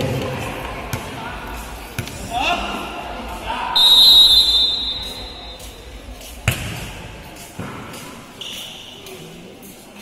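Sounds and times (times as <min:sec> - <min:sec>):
referee's whistle blast: 0:03.8 - 0:05.6.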